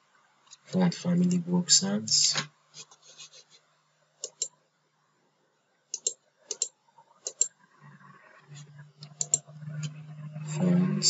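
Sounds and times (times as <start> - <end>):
faint low hum: 0.0 - 11.0
computer mouse clicks: 4.2 - 4.5, 6.0 - 7.5, 9.0 - 10.0.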